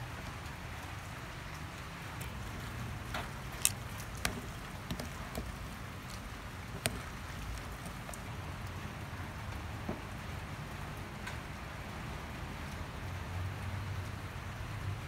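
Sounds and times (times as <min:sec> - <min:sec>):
wet salad rustling: 0:01.3 - 0:09.0.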